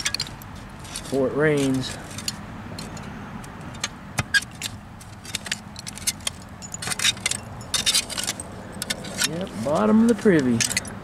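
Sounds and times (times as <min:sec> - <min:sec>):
shovel scraping and clinking: 0:00.0 - 0:03.1, 0:04.4 - 0:11.0.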